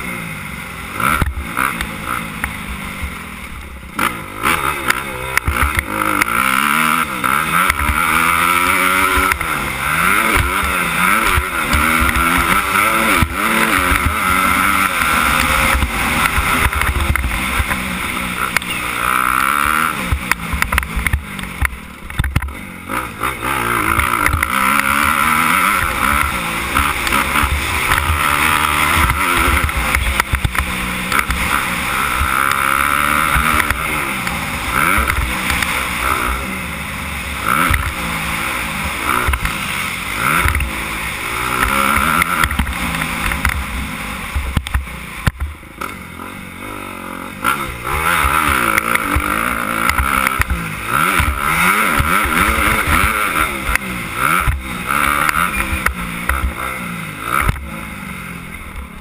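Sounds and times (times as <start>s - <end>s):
motocross engine revving: 0.0s - 59.0s.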